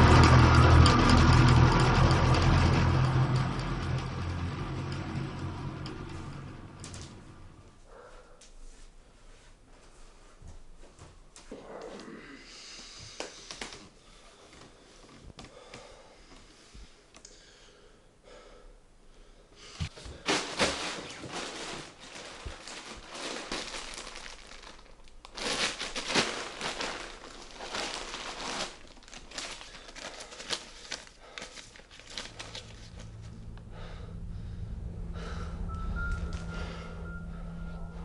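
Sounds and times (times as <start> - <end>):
plastic bag rustling and crinkling: 19.9 - 33.3
low steady hum: 31.8 - 38.0.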